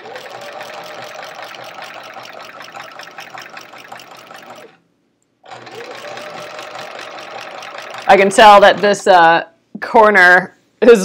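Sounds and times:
sewing machine stitching: 0.0s - 4.8s, 5.4s - 9.3s.

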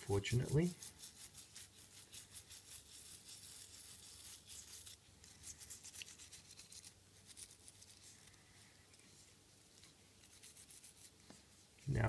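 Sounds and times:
toothbrush scrubbing circuit board: 0.1s - 8.0s.

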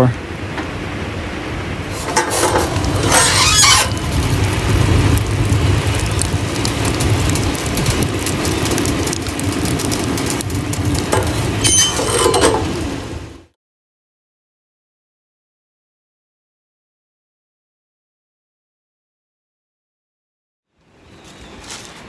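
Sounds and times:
low rush of fire: 0.0s - 13.5s
wood fire crackling: 1.8s - 13.5s
metal door squeal: 1.9s - 4.1s, 11.6s - 12.8s.

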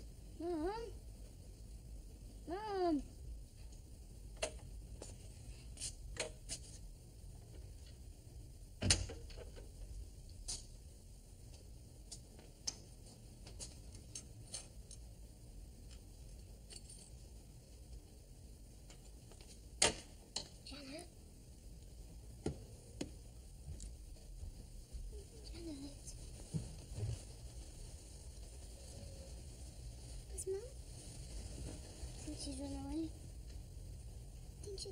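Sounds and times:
small clicks and knocks: 11.5s - 15.1s.

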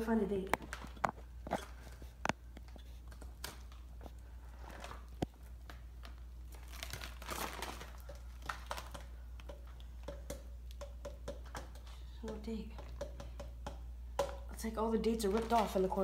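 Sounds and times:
newspaper crinkling and rustling: 4.5s - 9.0s, 15.2s - 16.0s.

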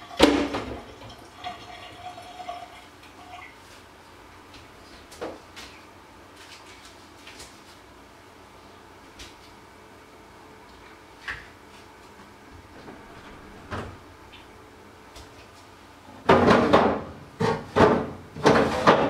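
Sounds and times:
refrigerator door knocks and clatters: 16.2s - 19.0s.

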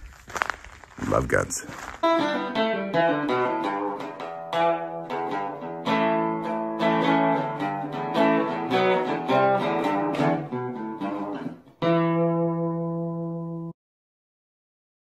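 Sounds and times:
acoustic guitar plucking: 2.0s - 13.7s.

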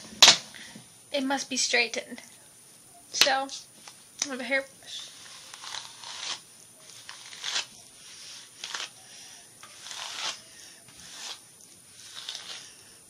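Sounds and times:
hairbrush swishing through hair: 9.6s - 12.8s.

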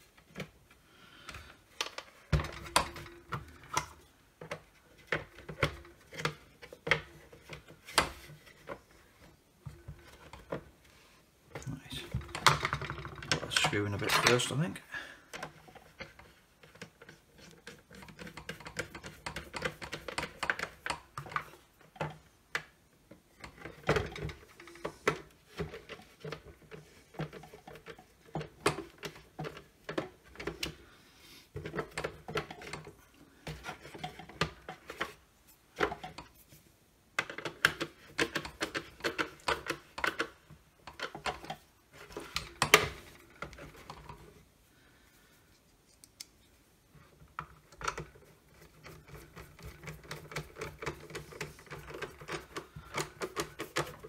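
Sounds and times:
plastic housing clicking and rattling: 11.5s - 14.5s, 15.3s - 30.9s, 31.6s - 36.4s, 37.2s - 44.4s, 47.1s - 54.0s.

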